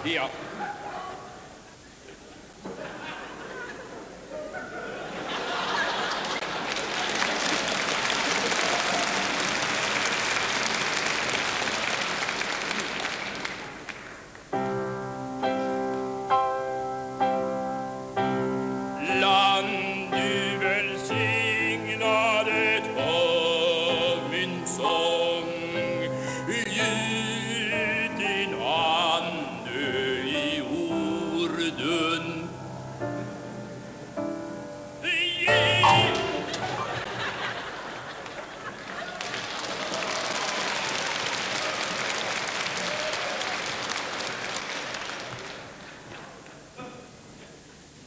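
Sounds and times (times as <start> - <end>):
audience applause: 5.1 - 14.5, 36.1 - 46.6
grand piano chords: 14.5 - 38.0
man singing operatically: 18.9 - 32.8, 35.0 - 36.6.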